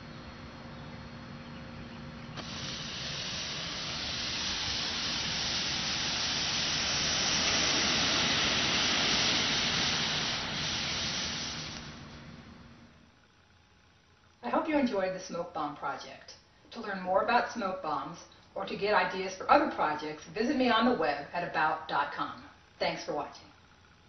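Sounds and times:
smoke bomb burning with hiss: 0:02.2 - 0:13.8.

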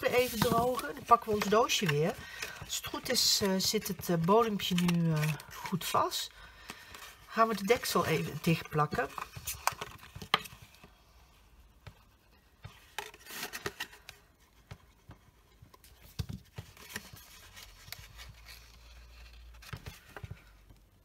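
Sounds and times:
paper rustling: 0:00.0 - 0:10.6.

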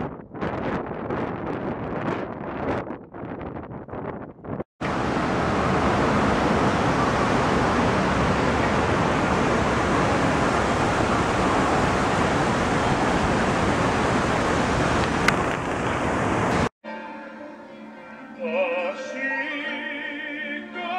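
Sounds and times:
wind: 0:00.0 - 0:16.7
city street traffic: 0:04.8 - 0:16.7.

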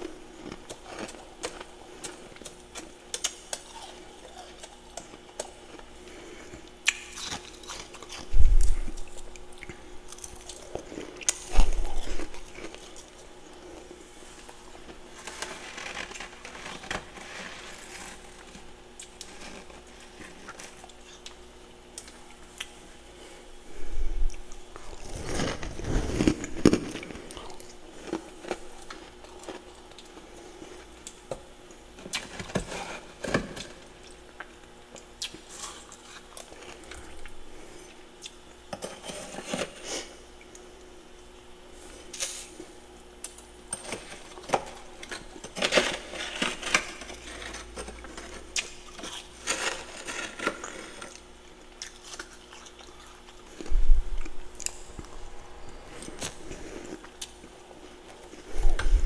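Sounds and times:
crunching and chewing: 0:00.0 - 0:59.0
faint steady hum: 0:00.0 - 0:59.0
metal spoon scraping frost: 0:45.4 - 0:51.2.

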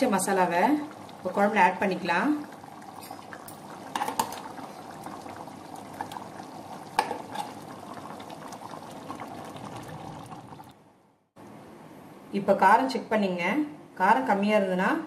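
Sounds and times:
stew bubbling in a pot: 0:00.0 - 0:10.9.

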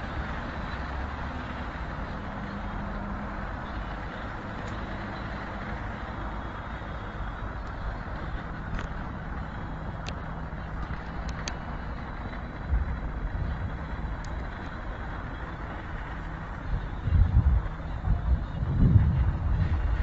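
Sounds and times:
road traffic rumble: 0:00.0 - 0:20.0
faint clicks: 0:10.0 - 0:12.5.

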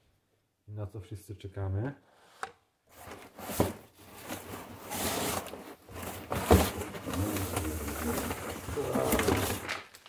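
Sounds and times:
cardboard scraping and rustling: 0:02.9 - 0:09.9.

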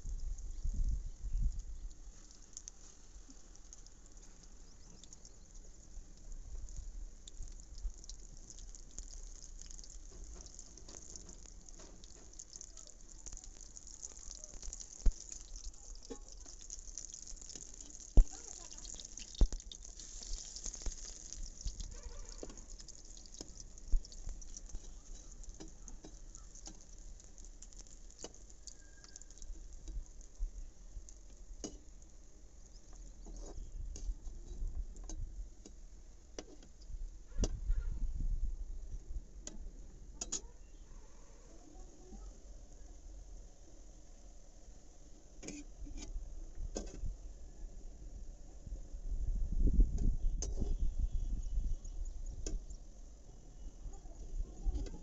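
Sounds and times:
food sizzling in hot oil: 0:01.4 - 0:33.5.

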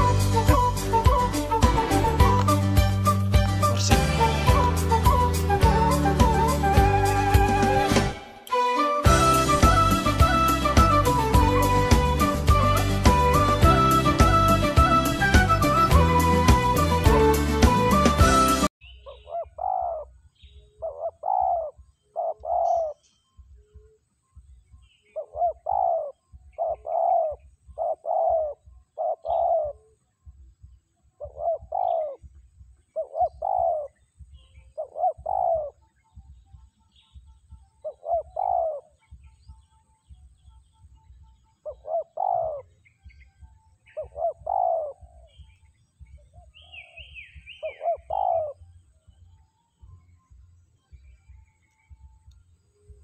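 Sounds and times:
small birds chirping: 0:00.0 - 0:07.6, 0:18.8 - 0:53.0
falling run of high bird notes: 0:00.0 - 0:18.7
dove cooing: 0:19.1 - 0:20.2, 0:20.8 - 0:23.0, 0:25.1 - 0:30.0, 0:31.2 - 0:35.8, 0:37.8 - 0:39.5, 0:41.6 - 0:42.8, 0:43.8 - 0:45.6, 0:46.2 - 0:48.6.

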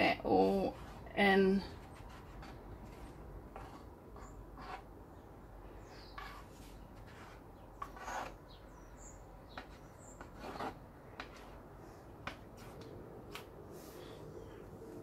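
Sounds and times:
spatula scraping wet paint: 0:00.4 - 0:04.9, 0:05.9 - 0:08.8, 0:09.5 - 0:11.6.

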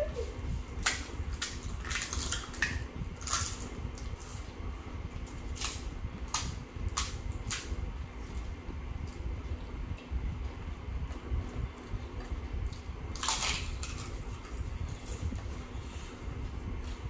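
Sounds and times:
steady low hum: 0:00.0 - 0:17.0
crisp shells cracking and crunching: 0:00.8 - 0:04.3, 0:05.3 - 0:07.7, 0:13.1 - 0:15.2.

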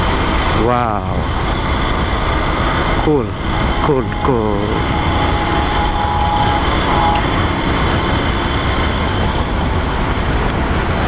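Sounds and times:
wind and road noise: 0:00.0 - 0:11.0
faint steady tone: 0:01.1 - 0:10.0.

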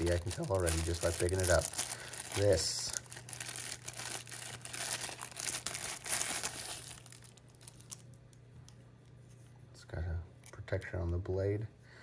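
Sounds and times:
plastic wrap crinkling: 0:00.0 - 0:08.4.

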